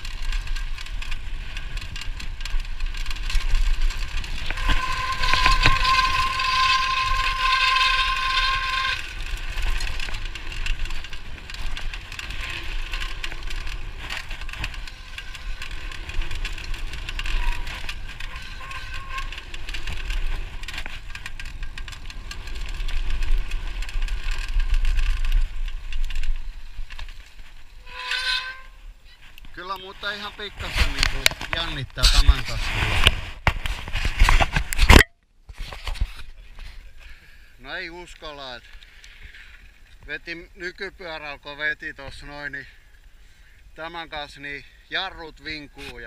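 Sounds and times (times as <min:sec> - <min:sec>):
wind rumble on microphone: 0:00.0 - 0:28.0
bike rattling over bumps: 0:00.0 - 0:35.0
brakes squealing: 0:03.0 - 0:25.3, 0:27.7 - 0:32.5.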